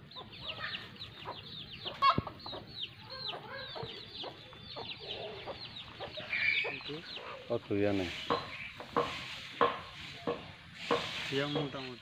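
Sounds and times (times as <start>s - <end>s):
chicks peeping: 0.0s - 12.0s
hen clucking: 0.0s - 12.0s
sharp knock: 8.3s - 11.7s.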